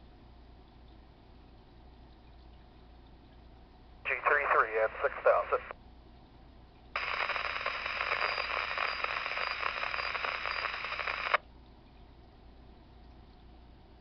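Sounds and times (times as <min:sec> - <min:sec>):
faint hiss: 0:04.1 - 0:05.7, 0:07.0 - 0:11.4
radio scanner static: 0:04.1 - 0:05.7, 0:07.0 - 0:11.4.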